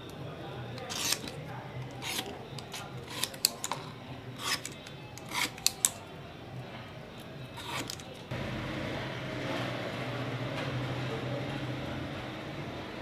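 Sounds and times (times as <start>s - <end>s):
hand tool scraping copper wire: 0.8s - 6.0s, 7.6s - 8.2s.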